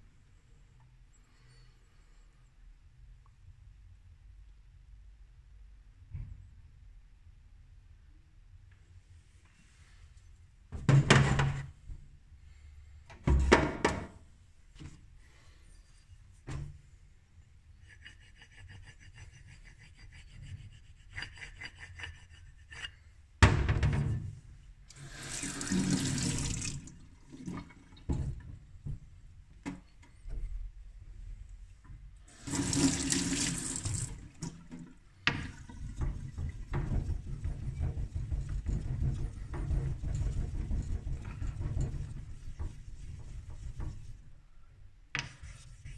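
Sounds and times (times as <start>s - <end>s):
rubbing on wet waterstone: 17.8s - 23.0s, 35.5s - 44.3s, 45.4s - 45.9s
water running into sink: 24.9s - 28.1s, 32.3s - 37.5s.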